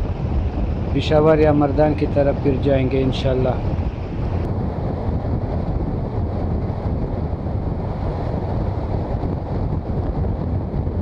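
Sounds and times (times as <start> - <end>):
road noise: 0.0 - 11.0
wind rush on microphone: 0.0 - 11.0.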